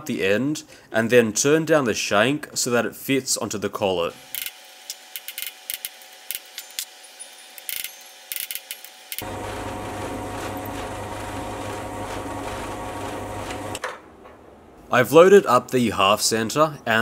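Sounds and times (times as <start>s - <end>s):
metal lathe running: 9.1s - 13.8s.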